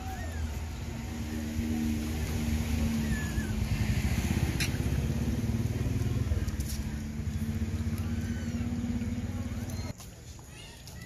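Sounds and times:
vehicle engine running: 0:00.0 - 0:10.5.

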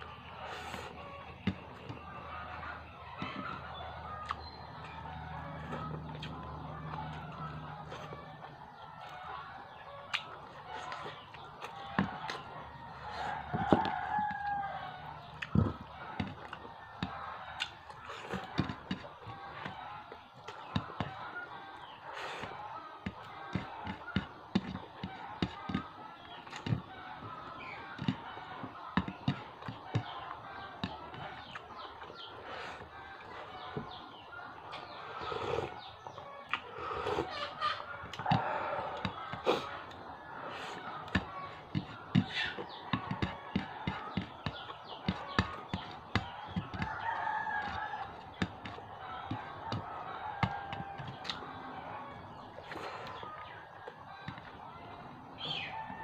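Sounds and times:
wet chewing sounds: 0:03.2 - 0:09.4, 0:10.0 - 0:26.8, 0:38.0 - 0:51.5
rooster crowing: 0:11.7 - 0:16.3, 0:36.8 - 0:56.0.

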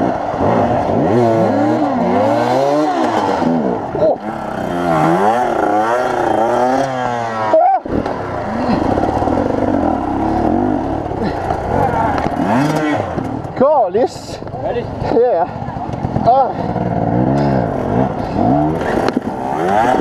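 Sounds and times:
dirt bike engine revving: 0:00.0 - 0:14.2, 0:14.9 - 0:20.0.

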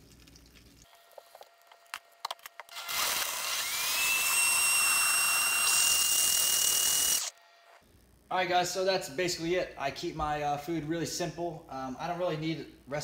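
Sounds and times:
blender motor whine: 0:02.7 - 0:07.8.

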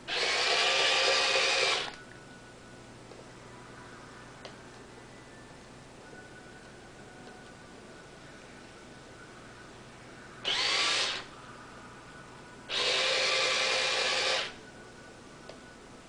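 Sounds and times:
small electric motor whirring: 0:00.1 - 0:02.0, 0:10.4 - 0:11.3, 0:12.7 - 0:14.6.

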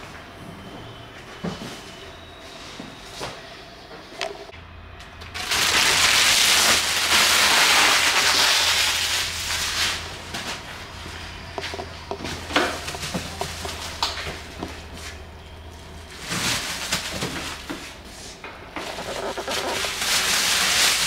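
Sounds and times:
plastic wrapping crinkling: 0:05.4 - 0:18.0, 0:18.8 - 0:21.0.

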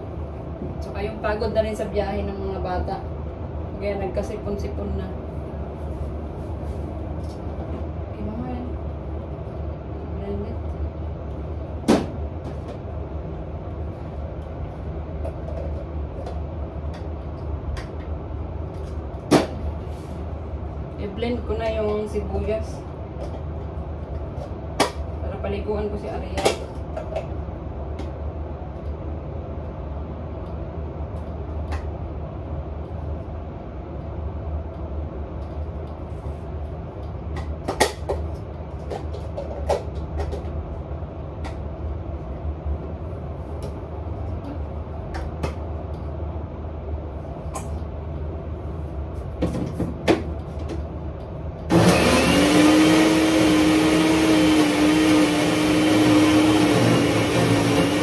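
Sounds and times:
steady low hum: 0:00.0 - 0:52.3
electric blender motor whine: 0:51.7 - 0:58.0.

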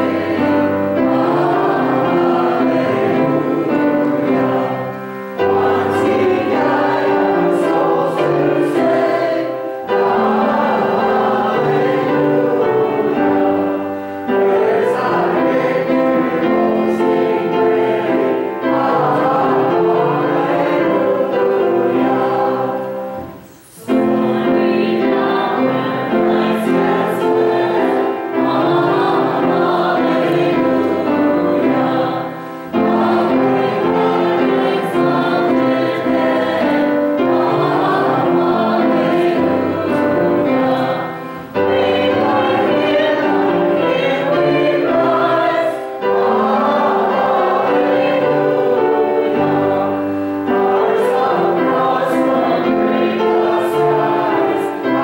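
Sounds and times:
choir singing: 0:00.0 - 0:55.0
instrumental accompaniment: 0:00.0 - 0:55.0.

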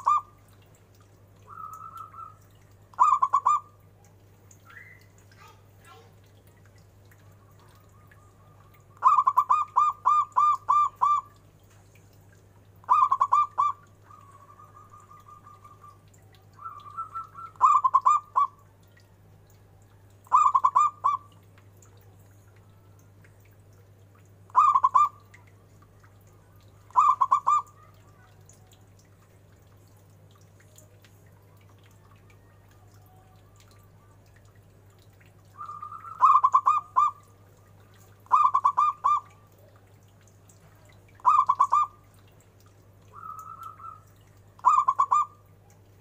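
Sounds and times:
dove cooing in staccato bursts: 0:00.0 - 0:00.4, 0:01.5 - 0:03.8, 0:07.5 - 0:11.4, 0:12.8 - 0:18.7, 0:20.3 - 0:21.4, 0:24.5 - 0:25.4, 0:26.8 - 0:28.5, 0:35.5 - 0:39.8, 0:41.2 - 0:42.2, 0:43.1 - 0:45.5
low trilling churr: 0:07.8 - 0:11.4, 0:12.8 - 0:18.6, 0:24.5 - 0:25.4, 0:26.8 - 0:28.6, 0:35.5 - 0:37.4, 0:38.2 - 0:39.7, 0:41.1 - 0:42.2, 0:43.1 - 0:45.5.

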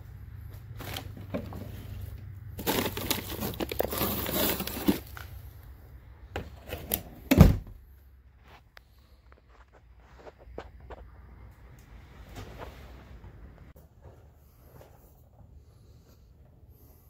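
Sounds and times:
freezer low hum: 0:00.0 - 0:17.0
plastic packages crinkling: 0:02.6 - 0:05.4.

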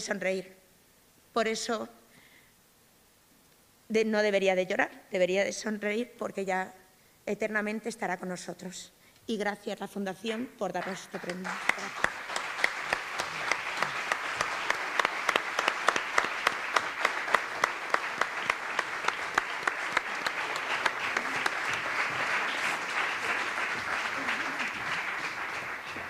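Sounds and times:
sharp individual claps: 0:10.3 - 0:26.0
audience applauding: 0:10.8 - 0:26.0.

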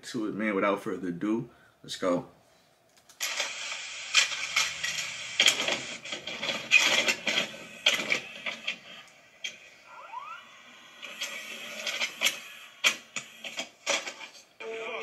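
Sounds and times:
tape mechanism clicks and clunks: 0:03.2 - 0:09.6
steady hiss: 0:03.2 - 0:14.6.

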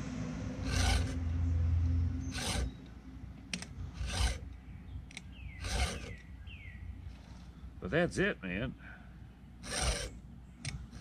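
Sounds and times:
low rumble: 0:00.0 - 0:05.3
file rasping on chainsaw cutters: 0:00.6 - 0:01.2, 0:02.3 - 0:02.8, 0:03.6 - 0:04.5, 0:05.6 - 0:06.2, 0:09.6 - 0:11.0.

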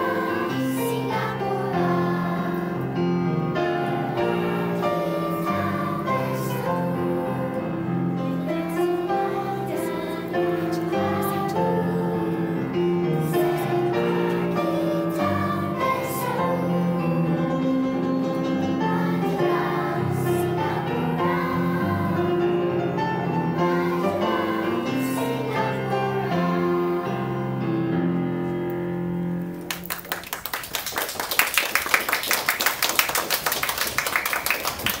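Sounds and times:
voices singing an anthem: 0:00.0 - 0:27.8
applause: 0:29.6 - 0:35.0.

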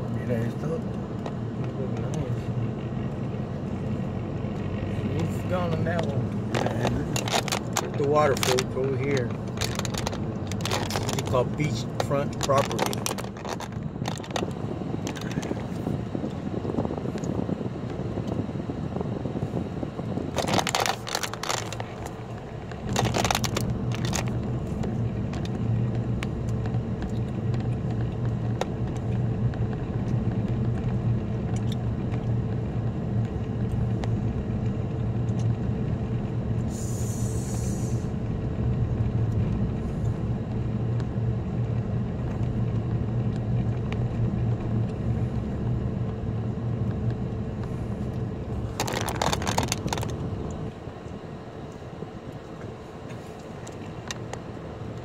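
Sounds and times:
engine and road drone: 0:00.0 - 0:55.0
sharp clicks and rattles: 0:04.5 - 0:18.4, 0:20.2 - 0:32.6, 0:46.8 - 0:50.8, 0:53.4 - 0:55.0
brief hiss: 0:36.7 - 0:38.1.

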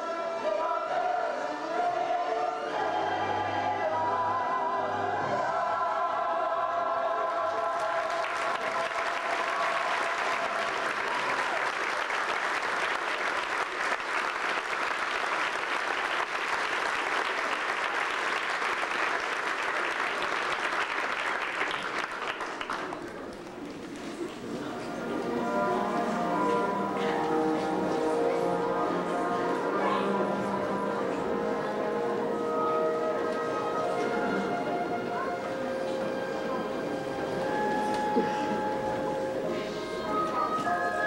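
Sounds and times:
children's choir singing: 0:00.0 - 0:11.4, 0:24.1 - 0:41.0
audience applause: 0:07.2 - 0:24.7.

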